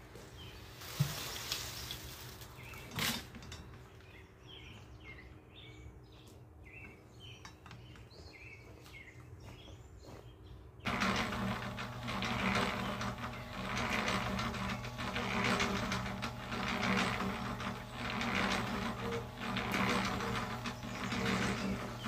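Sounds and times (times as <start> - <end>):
motor hum: 10.8 - 22.0
cement mixer drum churning: 10.9 - 22.0.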